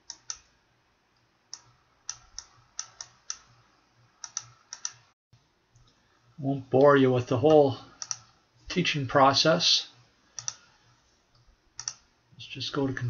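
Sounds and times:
computer mouse clicking: 0.0 - 0.5, 1.5 - 3.5, 4.2 - 5.0, 8.0 - 8.3, 10.3 - 10.7, 11.3 - 12.0.

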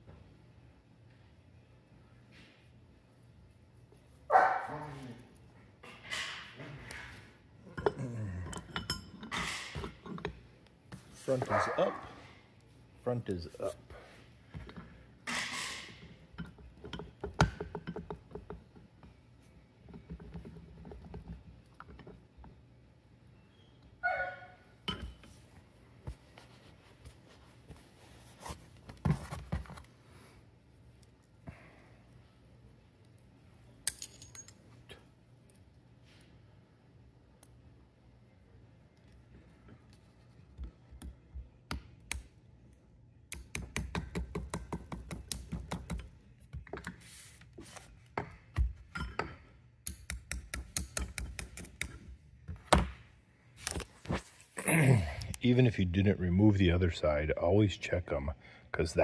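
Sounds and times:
metal parts clinking: 33.8 - 34.6
pliers clicking on metal: 43.3 - 44.0, 49.8 - 52.0.

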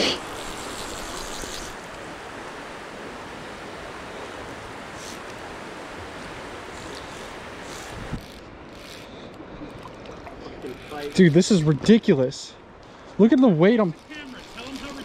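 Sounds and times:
river water rushing: 0.0 - 8.7.

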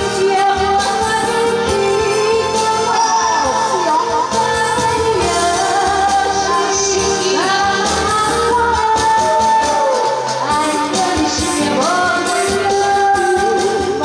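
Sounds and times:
amplified backing music: 0.0 - 14.0
woman singing into microphone: 0.0 - 14.0.

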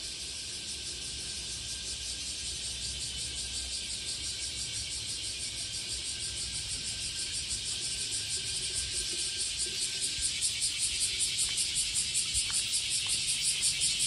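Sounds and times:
cicadas buzzing: 0.0 - 14.0.

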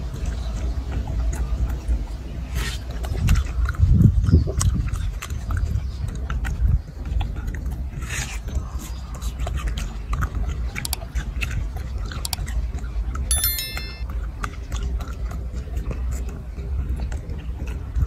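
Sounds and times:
bell-like chime: 13.3 - 14.0.

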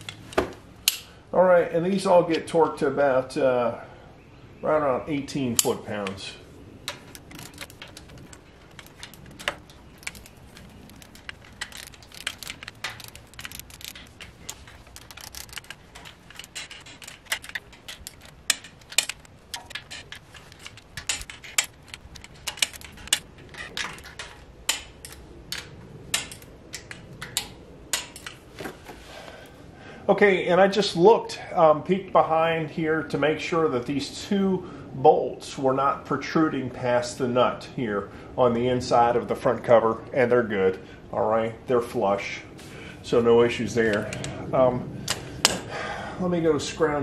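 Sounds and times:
tool clinking on metal: 6.9 - 25.2
torque wrench ratcheting clicks: 6.9 - 28.3.

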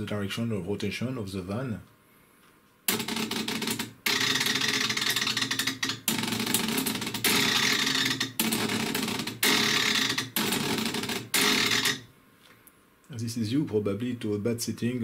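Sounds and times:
servo motor stuttering in bursts: 7.3 - 10.7.

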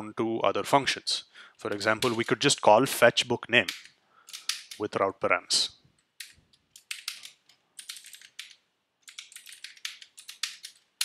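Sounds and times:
keyboard typing clicks: 6.1 - 10.8.

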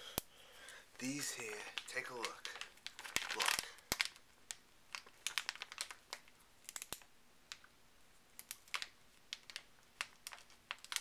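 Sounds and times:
plastic bag crackling under pen: 1.0 - 7.0, 8.4 - 11.0.

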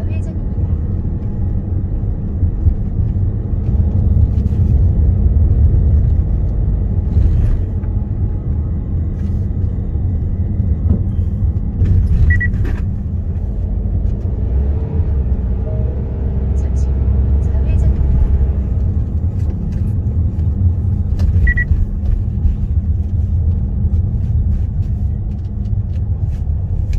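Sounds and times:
road and engine noise in car: 0.0 - 26.9.

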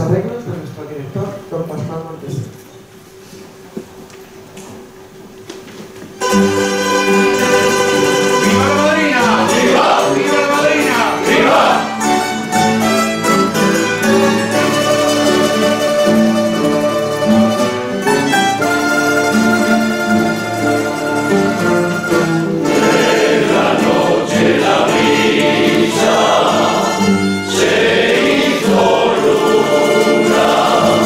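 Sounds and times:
plucked-string ensemble playing: 6.2 - 31.0.

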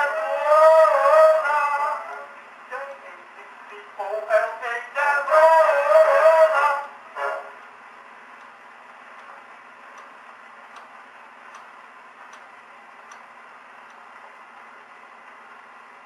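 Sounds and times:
record surface hiss: 0.0 - 16.0
soft record clicks: 7.6 - 15.7.

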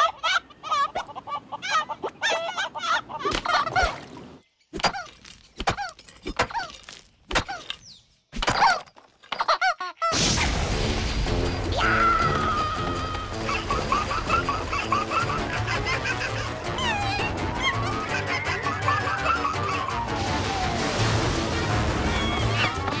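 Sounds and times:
loud steady rushing noise: 19.8 - 23.0
cartoon flamingos squawking: 22.1 - 23.0.

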